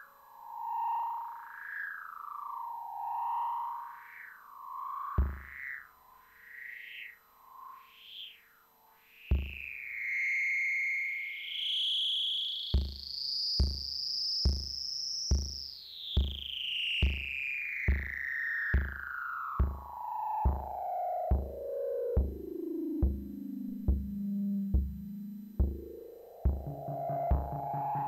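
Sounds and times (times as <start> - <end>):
kick drum beat: 5.2 - 5.5, 9.3 - 9.6, 12.8 - 15.6, 16.2 - 21.6, 22.2 - 28.0
synth tone sliding in pitch: 25.7 - 28.0.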